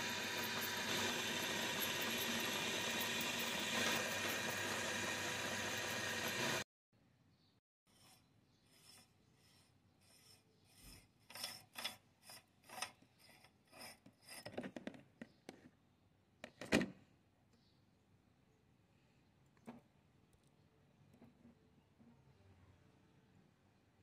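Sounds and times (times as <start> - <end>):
metal threads rasping: 0.0 - 6.6, 7.9 - 14.6
metal scrape: 7.9 - 14.6.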